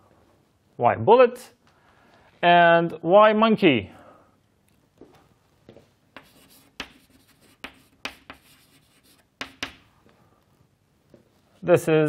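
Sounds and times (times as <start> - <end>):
chalk tapping and scratching on board: 6.2 - 9.9.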